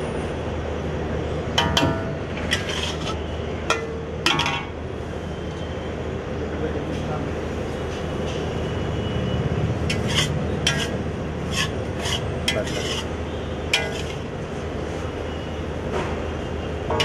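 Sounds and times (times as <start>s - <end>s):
spatula scraping metal pan: 2.4s - 3.3s, 9.9s - 14.3s.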